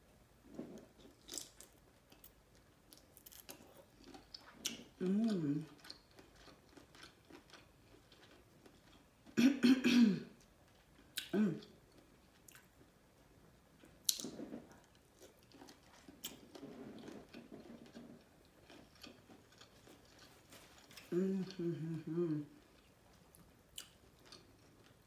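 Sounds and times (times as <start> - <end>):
person humming: 5.0 - 5.7, 21.1 - 22.6.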